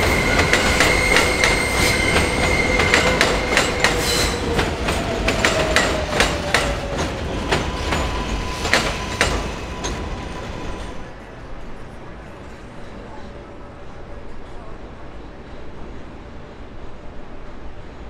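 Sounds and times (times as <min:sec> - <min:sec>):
train wheels squealing: 0:00.0 - 0:11.1.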